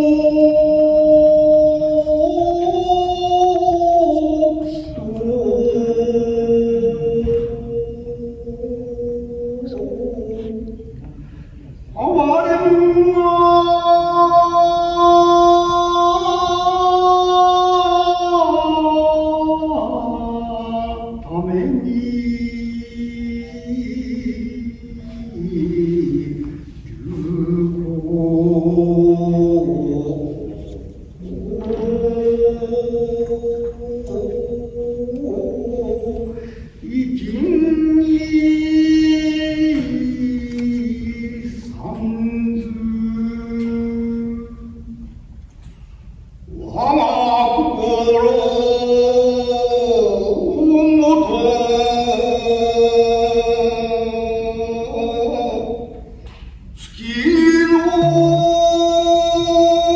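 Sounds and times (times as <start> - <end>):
person chanting a long note: 0.0 - 11.1, 57.3 - 59.9
person chanting in held notes: 0.0 - 45.1.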